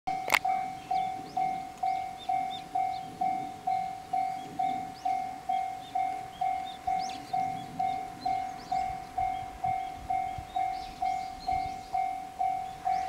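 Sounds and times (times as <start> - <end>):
bird chirps: 0.1 - 13.0
level crossing electronic bell: 0.1 - 13.0
sharp click: 0.2 - 0.5.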